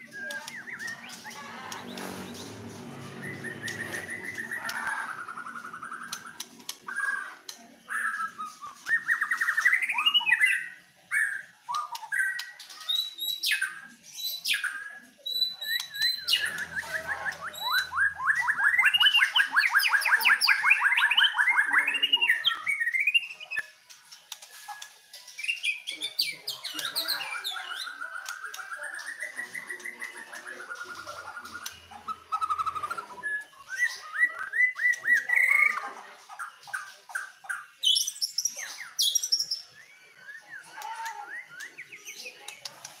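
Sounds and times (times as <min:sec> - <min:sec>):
bird singing whistled phrases: 0:00.0 - 0:01.4, 0:07.9 - 0:23.7, 0:25.4 - 0:35.8, 0:37.2 - 0:42.6
bird fast trill: 0:00.6 - 0:07.2, 0:15.3 - 0:23.4.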